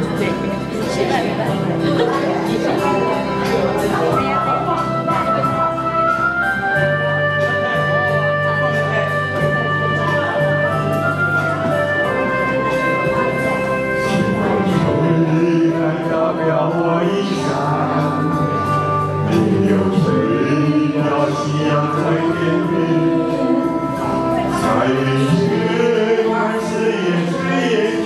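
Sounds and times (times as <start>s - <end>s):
karaoke backing track: 0.0s - 28.0s
man singing: 12.6s - 28.0s.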